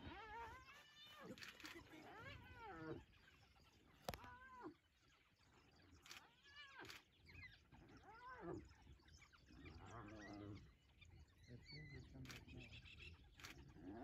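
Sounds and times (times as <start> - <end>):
animals squealing and yelping: 0.0 - 4.8.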